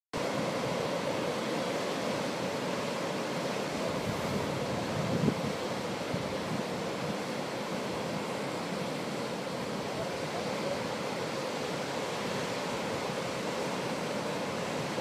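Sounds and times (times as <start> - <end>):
sea surf washing onto beach: 0.2 - 15.0
wind buffeting microphone: 3.9 - 7.2.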